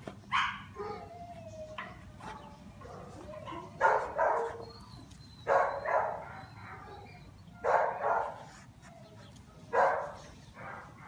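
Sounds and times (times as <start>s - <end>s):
dog barking: 0.3s - 1.0s, 2.9s - 4.6s, 5.5s - 8.4s, 9.7s - 10.9s.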